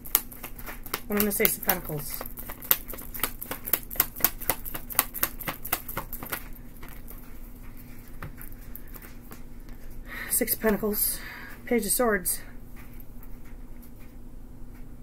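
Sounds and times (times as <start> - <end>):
cards being shuffled: 0.0 - 10.0.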